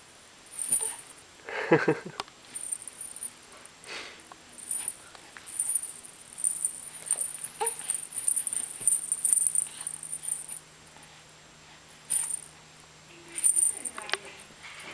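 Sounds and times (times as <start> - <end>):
soft cloth rustling: 4.6 - 10.6.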